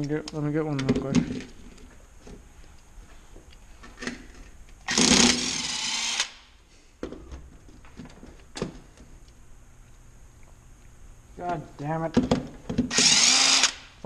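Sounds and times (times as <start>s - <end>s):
power tool whining: 4.9s - 6.4s, 12.9s - 14.0s.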